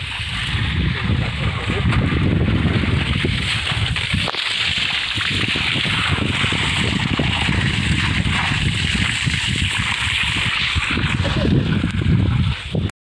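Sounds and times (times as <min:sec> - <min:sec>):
vehicle rumbling on dirt road: 0:00.0 - 0:12.9
wind buffeting microphone: 0:00.0 - 0:12.9
small irregular crackles: 0:02.8 - 0:12.7.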